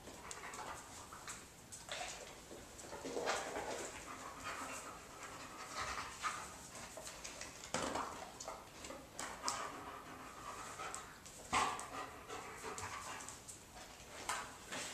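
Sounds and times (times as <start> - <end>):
dog panting: 9.3 - 13.4.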